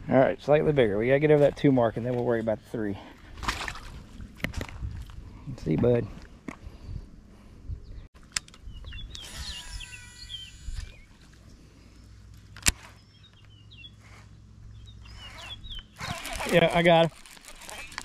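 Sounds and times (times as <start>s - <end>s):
birds chirping and whistling: 7.7s - 11.2s, 12.8s - 16.6s.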